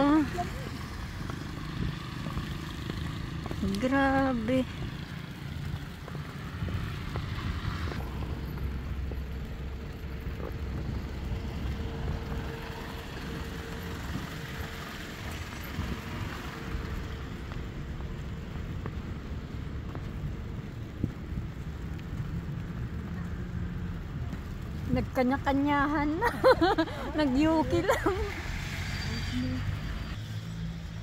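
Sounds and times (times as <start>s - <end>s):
road traffic rumble: 0.0s - 31.0s.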